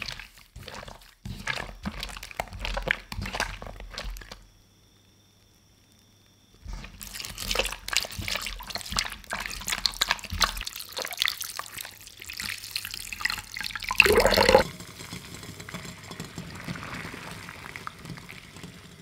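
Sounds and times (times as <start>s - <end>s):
wet squelching and sloshing: 0.0s - 4.4s, 6.8s - 14.6s.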